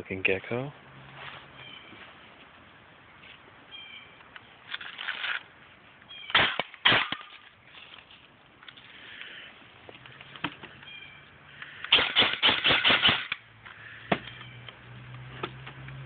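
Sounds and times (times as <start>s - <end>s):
brief rustle: 4.7s - 5.5s.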